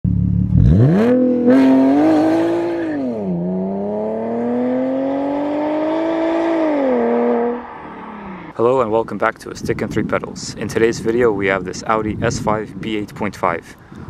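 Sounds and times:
car engine revving: 0.1s - 8.6s.

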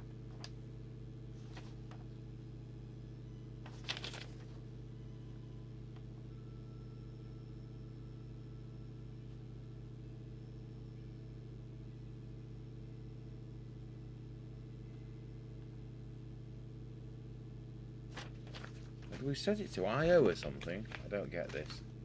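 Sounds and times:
low electrical hum: 0.0s - 22.0s
paper leaflet rustle: 1.4s - 2.0s, 3.6s - 4.6s, 18.1s - 19.3s, 20.3s - 21.9s.

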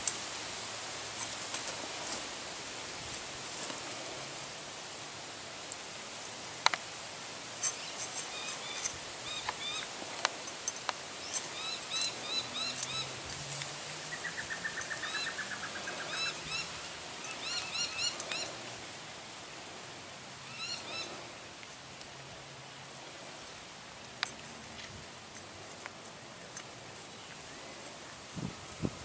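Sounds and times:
birds chirping: 7.5s - 18.8s, 20.3s - 21.5s
bird trill: 11.2s - 13.1s, 14.0s - 18.6s, 20.5s - 21.2s.

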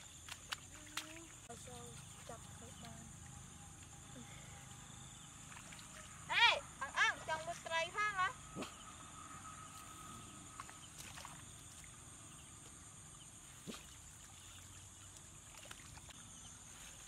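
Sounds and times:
bare feet wading: 0.0s - 3.3s, 5.4s - 6.3s, 9.7s - 12.8s, 13.4s - 17.0s
shallow water splashing: 5.4s - 6.5s, 9.8s - 12.5s, 13.4s - 16.2s.

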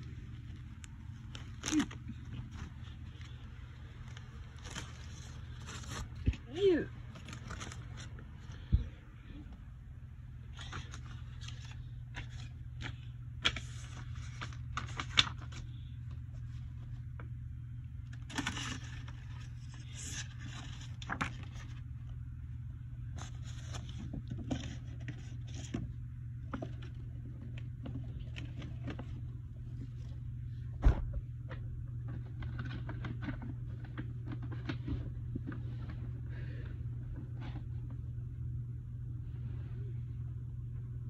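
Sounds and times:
toys rustling in plastic bins: 0.0s - 8.9s, 18.1s - 22.1s, 23.1s - 30.2s
steady low hum: 0.0s - 41.0s.

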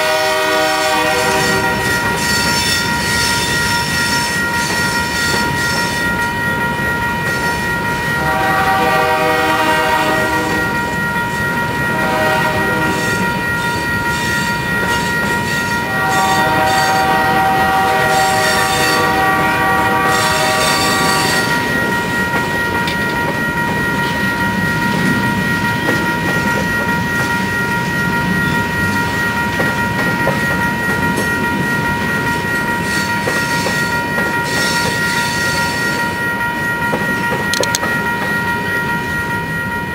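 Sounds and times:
locomotive horn blasts: 0.0s - 2.9s, 8.2s - 10.7s, 11.9s - 13.2s, 15.8s - 21.7s
crossing bells ringing: 0.0s - 39.9s.

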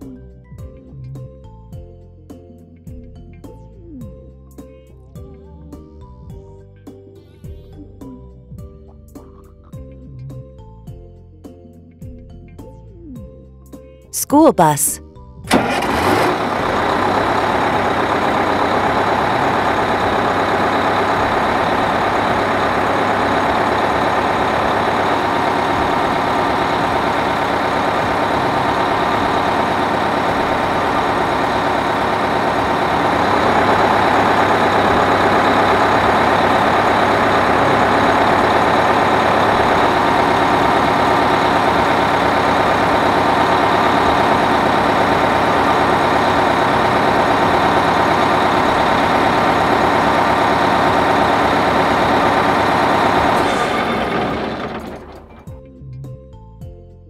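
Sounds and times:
bus diesel engine idling: 14.2s - 55.5s.

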